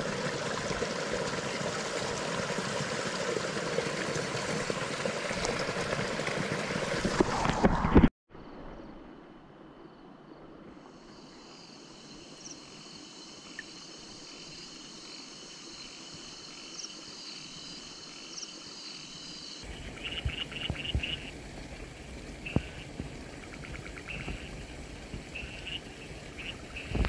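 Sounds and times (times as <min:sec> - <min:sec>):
insects trilling and chirping: 0:09.7 - 0:21.3, 0:22.4 - 0:27.0.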